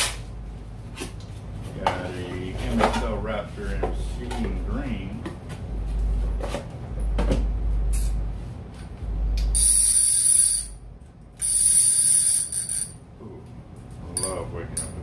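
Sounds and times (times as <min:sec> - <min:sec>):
buzzing reel ratchet: 0:09.5 - 0:10.8, 0:11.4 - 0:13.0
fishing reel clicks: 0:11.4 - 0:12.9.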